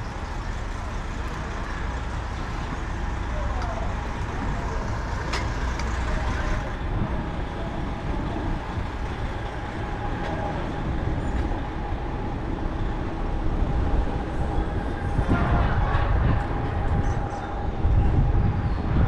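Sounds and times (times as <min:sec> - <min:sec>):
bicycle road rumble: 0:00.0 - 0:19.0
street traffic: 0:00.0 - 0:19.0
wind noise: 0:03.9 - 0:19.0.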